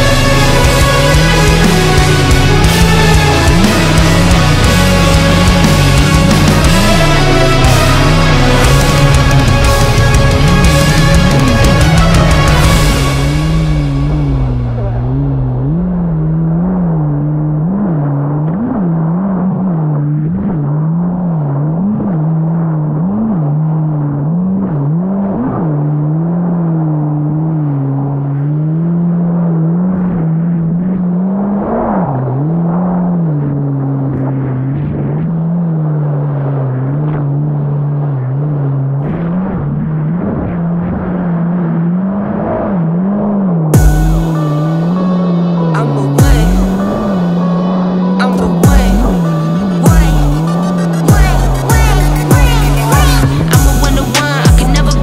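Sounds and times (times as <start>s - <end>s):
jet ski engine running: 0.0s - 17.2s, 43.7s - 55.0s.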